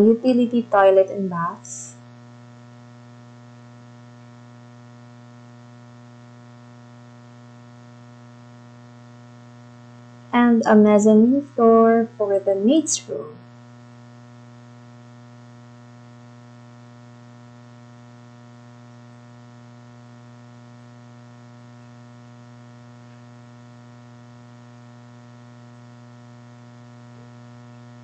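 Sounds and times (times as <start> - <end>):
buzzy electrical hum: 0.0 - 28.0.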